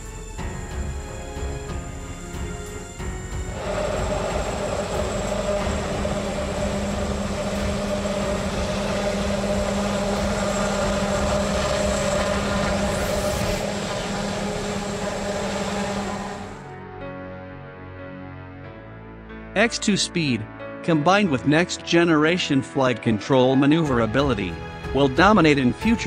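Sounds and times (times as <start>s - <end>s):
helicopter drone: 0.0s - 16.7s
constant hum: 3.5s - 16.6s.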